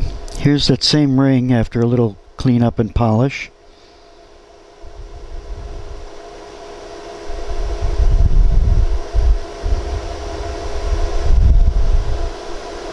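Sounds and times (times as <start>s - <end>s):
machine hum: 0.0s - 12.9s.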